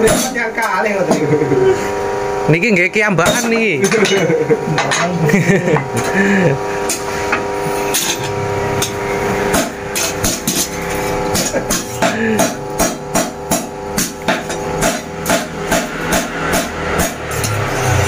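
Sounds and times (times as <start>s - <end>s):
hammer striking steel on anvil: 6.8s - 17.7s.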